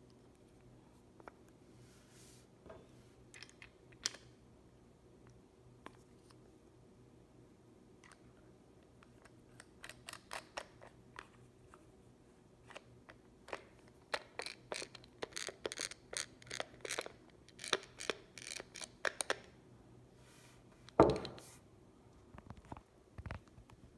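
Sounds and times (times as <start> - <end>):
pepper mill grinding clicks: 14.1 - 19.4.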